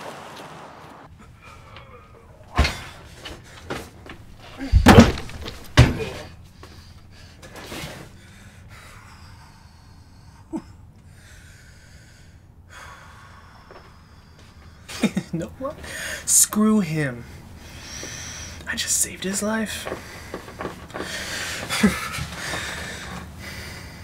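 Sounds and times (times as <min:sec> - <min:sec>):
heavy thuds inside a van: 0:02.5 - 0:06.8, 0:19.8 - 0:23.2.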